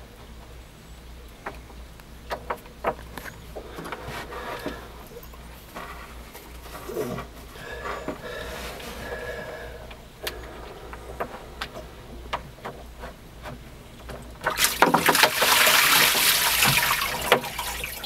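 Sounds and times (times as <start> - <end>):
water gushing in: 14.4 - 18.0.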